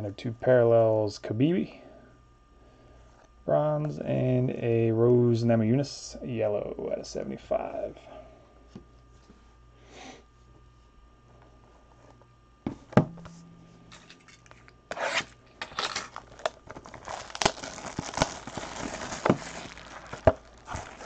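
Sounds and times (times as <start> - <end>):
plastic wrap tearing and crinkling: 14.4 - 21.0.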